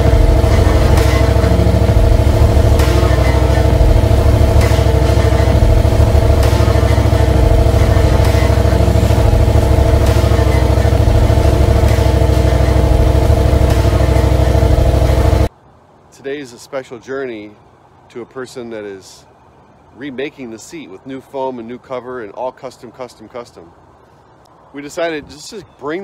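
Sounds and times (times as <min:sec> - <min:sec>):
motorcycle engine running: 0:00.0 - 0:15.5.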